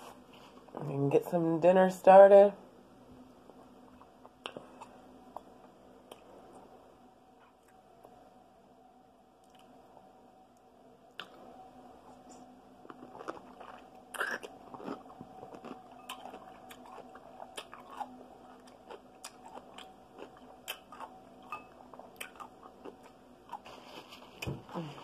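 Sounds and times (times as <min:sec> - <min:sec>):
chewing: 0:12.2 - 0:24.5.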